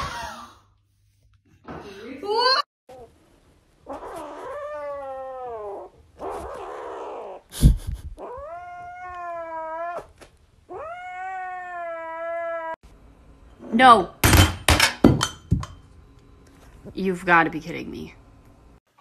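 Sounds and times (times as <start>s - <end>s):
kitten yowling: 10.7s - 12.8s.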